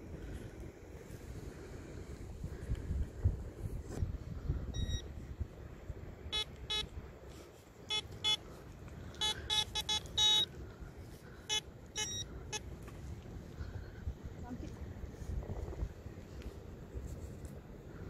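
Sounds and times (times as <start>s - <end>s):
metal detector short beeps: 4.7s - 5.1s, 6.3s - 6.9s, 7.9s - 8.4s, 9.2s - 10.5s, 11.5s - 12.6s.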